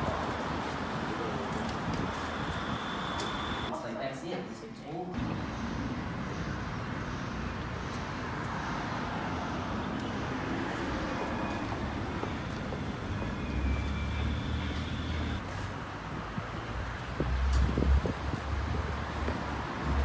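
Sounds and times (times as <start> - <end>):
passing cars traffic noise: 0.0 - 3.7, 5.2 - 20.0.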